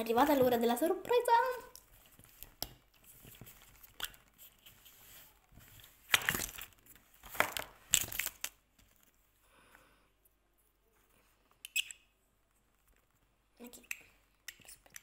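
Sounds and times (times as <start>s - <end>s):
plastic packaging crinkling: 1.4s - 9.2s.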